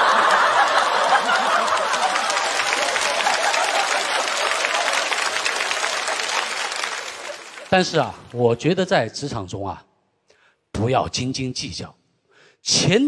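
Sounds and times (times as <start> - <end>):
audience laughing: 0.0 - 8.2
audience applauding: 0.0 - 8.5.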